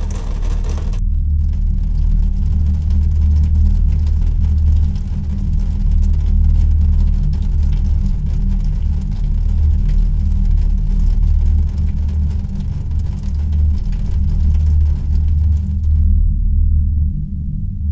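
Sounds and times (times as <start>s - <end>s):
loud low rumble: 0.0s - 17.9s.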